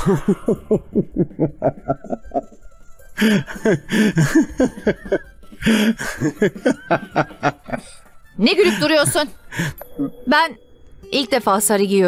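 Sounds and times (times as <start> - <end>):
man laughing heartily: 0.0 - 8.0.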